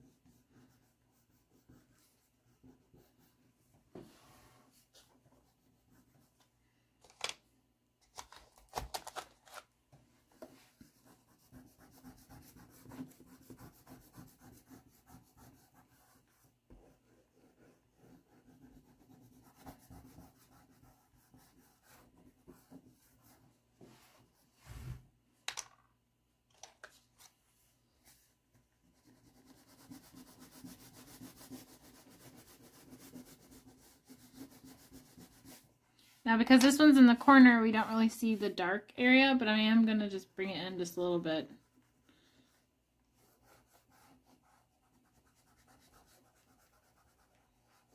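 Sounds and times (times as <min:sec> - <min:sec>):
pastel rubbing on paper: 0:00.0 - 0:03.5, 0:10.6 - 0:24.4, 0:28.9 - 0:35.8, 0:41.5 - 0:47.9.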